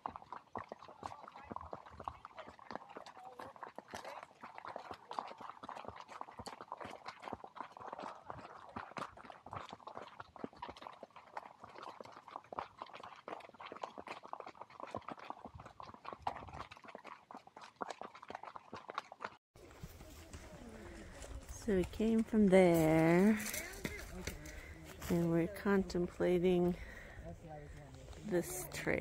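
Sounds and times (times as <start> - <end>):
hooves on gravel: 19.6 - 29.0.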